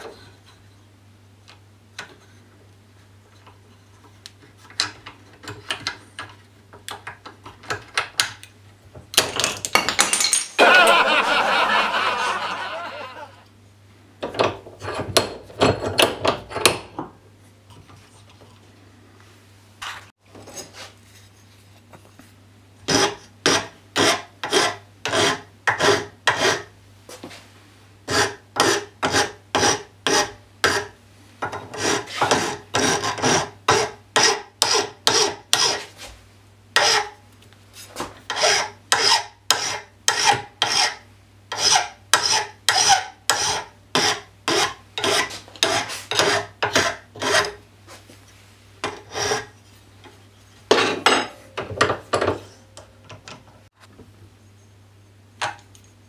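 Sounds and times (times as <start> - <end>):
hand file stroking metal: 31.7 - 35.9, 38.3 - 47.6, 48.9 - 49.6.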